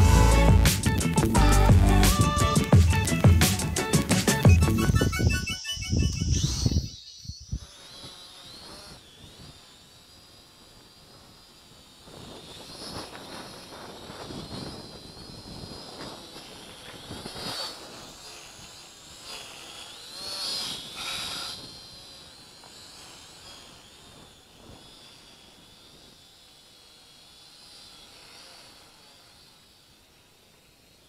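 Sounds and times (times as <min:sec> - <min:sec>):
wind rushing over microphone: 0:00.0 - 0:07.7, 0:11.0 - 0:19.4, 0:20.7 - 0:26.2
drone propellers whining: 0:00.0 - 0:31.0.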